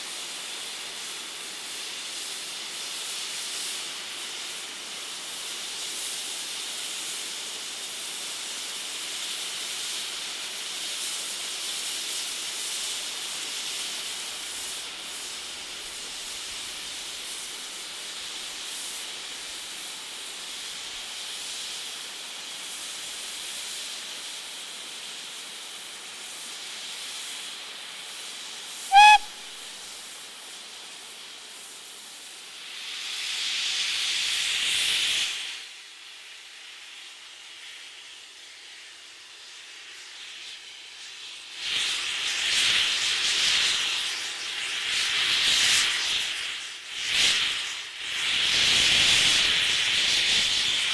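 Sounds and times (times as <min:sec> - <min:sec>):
steam blowing from drain cocks: 0:00.0 - 0:50.9
steam hissing from safety valves: 0:00.0 - 0:50.9
steam whistle toot: 0:28.9 - 0:29.8.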